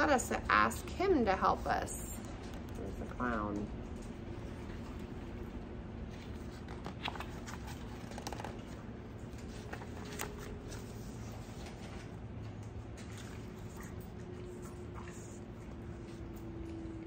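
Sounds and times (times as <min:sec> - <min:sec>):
paper pages rustling: 0:06.1 - 0:12.2.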